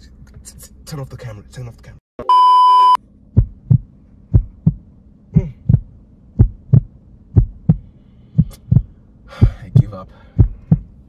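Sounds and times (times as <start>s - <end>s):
heartbeat double thump: 3.3s - 11.0s.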